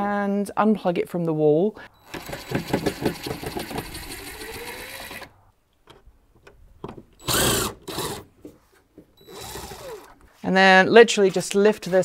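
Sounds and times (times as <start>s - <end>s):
cordless drill driver spinning: 2.0s - 5.3s, 7.2s - 8.3s, 9.2s - 10.3s.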